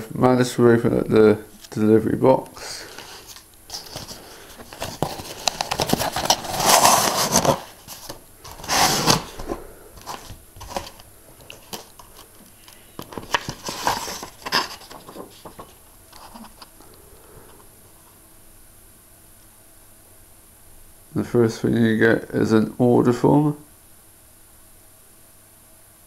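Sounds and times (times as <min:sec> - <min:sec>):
cardboard and paper rustling: 0:02.8 - 0:16.7.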